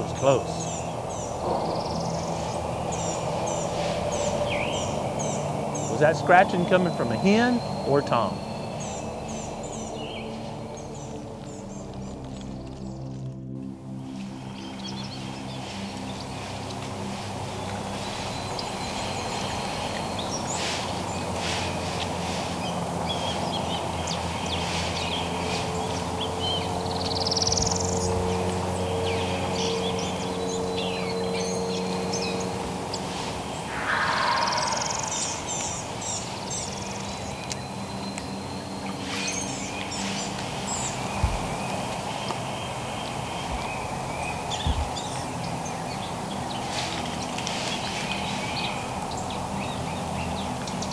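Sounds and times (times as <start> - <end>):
small birds chirping: 0.0 - 50.9
turkey scratching in dry leaves: 15.3 - 23.9, 46.6 - 48.8.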